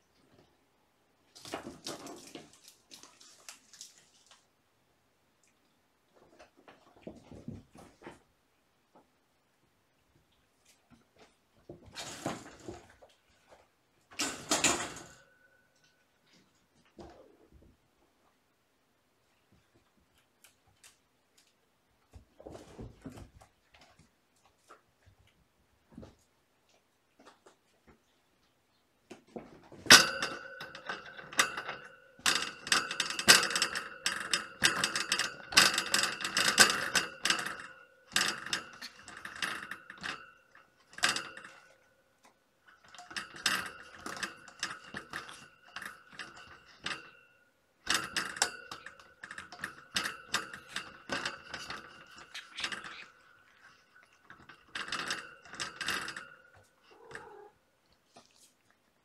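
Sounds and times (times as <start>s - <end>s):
cat toy clicking and rattling: 47.9s - 57.5s.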